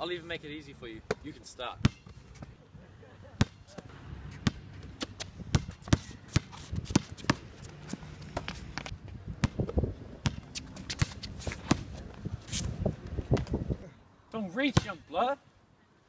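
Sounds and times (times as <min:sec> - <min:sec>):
footsteps and shoe scuffs: 0:03.8 - 0:08.9, 0:10.4 - 0:12.8
basketball bouncing on hard court: 0:05.5 - 0:07.4, 0:09.4 - 0:11.8.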